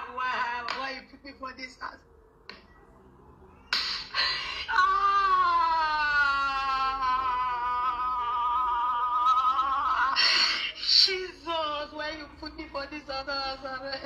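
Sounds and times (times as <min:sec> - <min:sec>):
wailing cry through phone speaker: 0:04.4 - 0:10.8.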